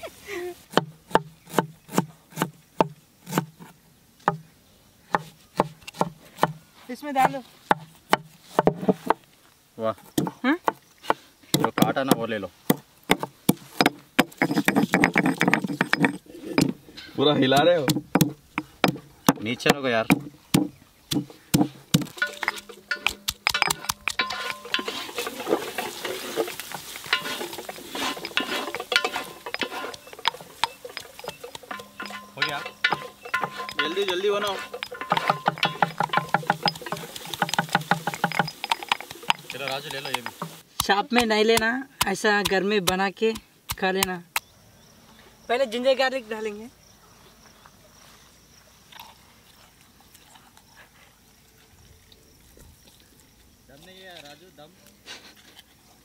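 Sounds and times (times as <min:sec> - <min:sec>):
spatula scraping metal pot: 0:22.1 - 0:40.6
onions sizzling in a pot: 0:24.3 - 0:31.0, 0:36.3 - 0:38.0, 0:38.6 - 0:40.7.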